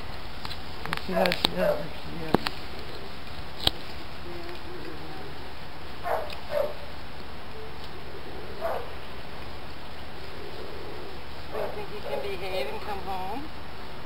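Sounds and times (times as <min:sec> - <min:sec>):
dog barking: 0:01.2 - 0:01.9, 0:06.0 - 0:06.8, 0:08.6 - 0:08.9, 0:11.5 - 0:12.3.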